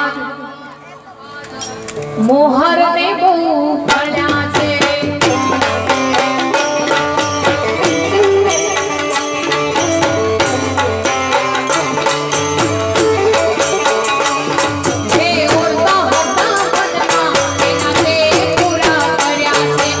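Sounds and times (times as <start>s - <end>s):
harmonium and keyboard melody: 0.0s - 20.0s
fast percussion beat: 3.9s - 20.0s.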